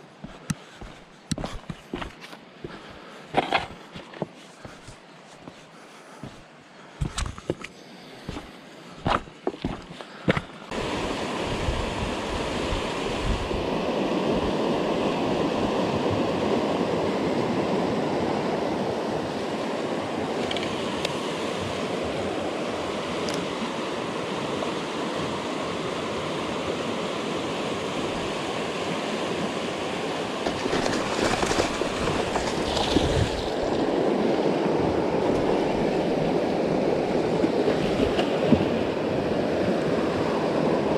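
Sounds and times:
footsteps crunching on river stones: 0:00.1 - 0:10.6, 0:30.4 - 0:33.9
river water rushing over rocks: 0:27.3 - 0:40.9.

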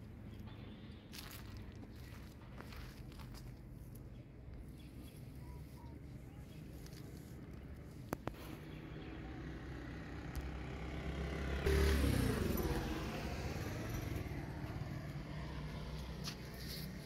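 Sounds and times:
motor vehicle passing by: 0:08.3 - 0:17.0.

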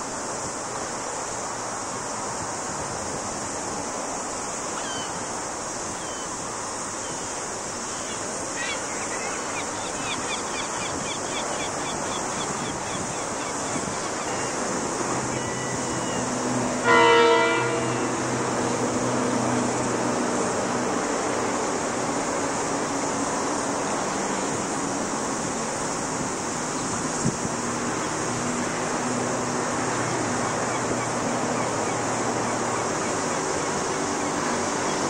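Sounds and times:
locomotive engine hum: 0:00.0 - 0:35.0
wind: 0:00.0 - 0:35.0
locomotive horn blast: 0:15.3 - 0:20.5.

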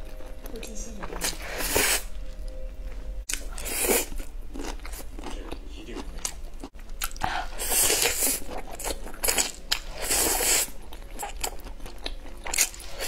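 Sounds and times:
noodles being slurped: 0:01.2 - 0:02.1, 0:07.6 - 0:10.8
wet chewing: 0:03.2 - 0:13.0.

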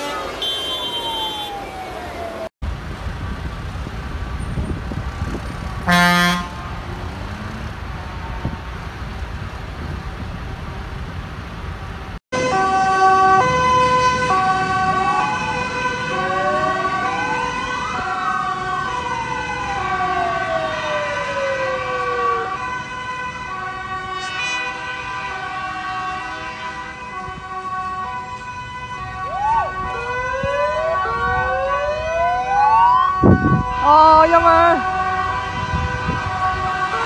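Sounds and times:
two-tone siren: 0:00.0 - 0:02.5, 0:12.4 - 0:37.0
wailing siren: 0:00.0 - 0:02.5, 0:12.4 - 0:37.0
road rumble: 0:00.0 - 0:37.0.

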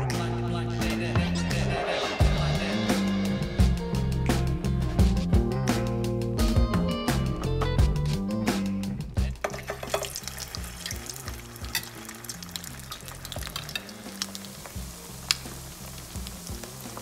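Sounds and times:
oil crackling and popping: 0:09.3 - 0:17.0
patties sizzling in hot oil: 0:09.4 - 0:17.0.

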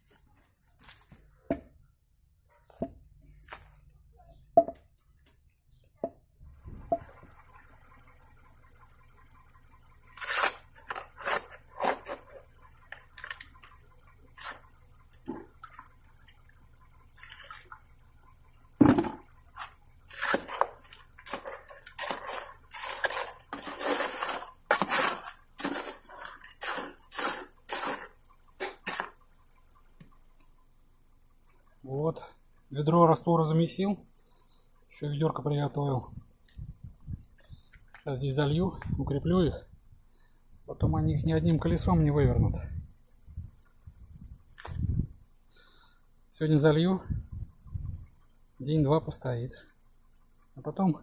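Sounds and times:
trowel scraping mortar in metal basin: 0:19.6 - 0:29.1.

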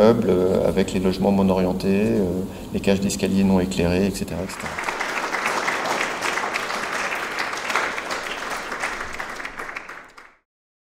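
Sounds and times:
audience applauding: 0:04.5 - 0:10.4.

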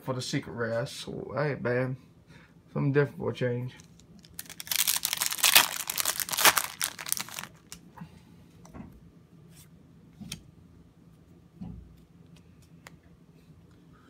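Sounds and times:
foil wrapper tearing and crinkling: 0:03.9 - 0:07.8.

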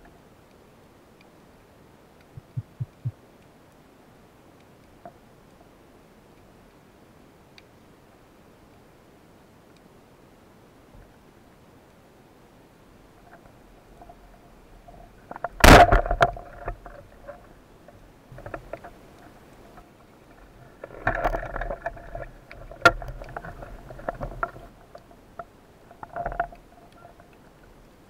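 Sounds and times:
speargun firing crack: 0:15.6 - 0:16.1.

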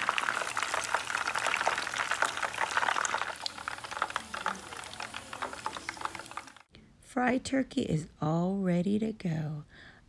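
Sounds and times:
meat deep-frying in oil: 0:00.0 - 0:06.7.

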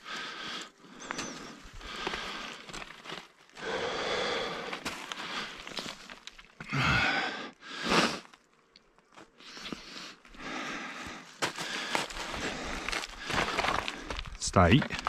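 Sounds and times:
footsteps on loose scree: 0:00.1 - 0:06.6, 0:11.3 - 0:15.0.

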